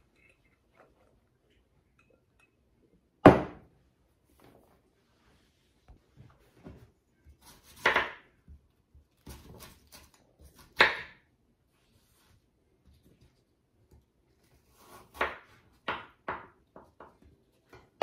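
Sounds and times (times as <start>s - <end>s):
knife chopping on wooden board: 7.4s - 8.3s, 9.2s - 11.2s, 14.8s - 17.1s.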